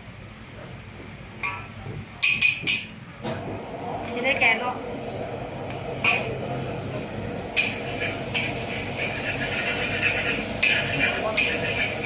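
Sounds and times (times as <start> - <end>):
noodles sizzling in a wok: 5.9 - 12.0
spatula scraping a wok: 7.6 - 12.0.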